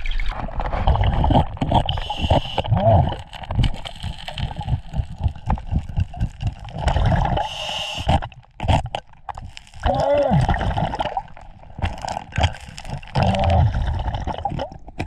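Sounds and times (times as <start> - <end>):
gurgling exhaled bubbles: 0.0 - 15.0
regulator breathing hiss: 2.0 - 2.6, 7.4 - 8.1.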